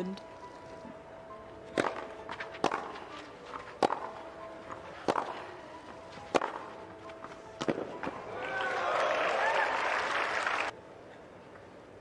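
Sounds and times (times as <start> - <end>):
ball bouncing: 1.7 - 5.5, 6.2 - 8.2
tennis racket hitting ball: 1.7 - 8.2
footsteps on clay court: 1.7 - 8.3.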